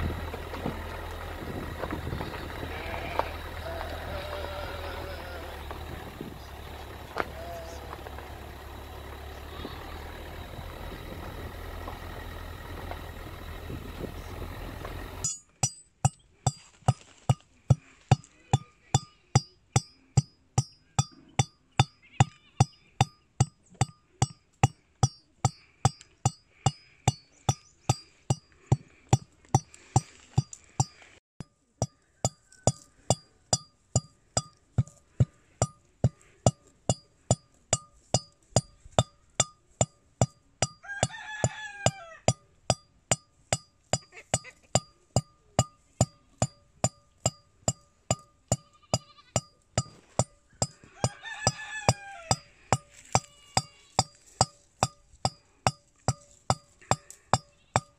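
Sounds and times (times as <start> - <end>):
car rumble: 0.0 - 15.3
metal pestle striking mortar: 42.3 - 50.8, 51.4 - 57.9.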